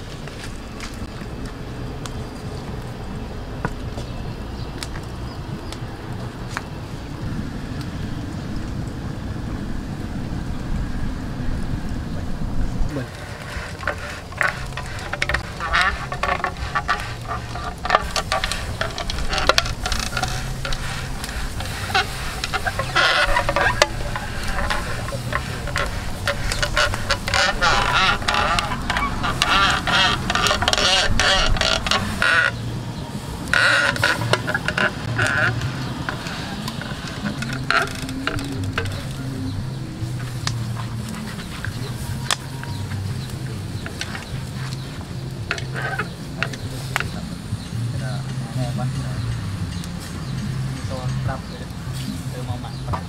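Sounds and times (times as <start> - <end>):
low buzzing hum: 0.0 - 48.0
pig roasting crackling and sizzling: 0.0 - 53.0
fat spitting on hot coals: 12.9 - 53.0.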